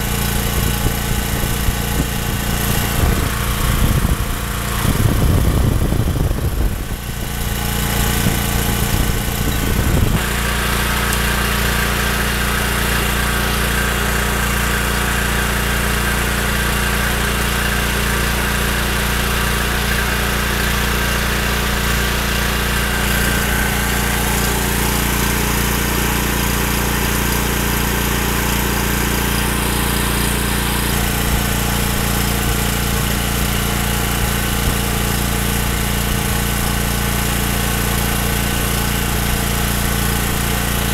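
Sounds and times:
generator engine running: 0.0s - 40.9s
low rumbling thumps: 0.6s - 7.4s, 8.0s - 10.2s.

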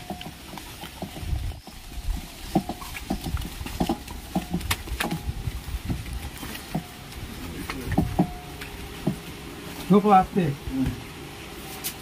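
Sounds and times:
knocks on cardboard box: 9.0s - 9.3s.

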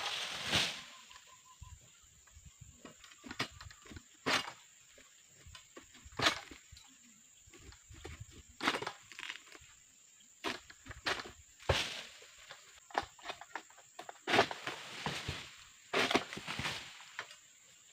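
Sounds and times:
dry leaves crunching and rustling: 0.0s - 1.1s.

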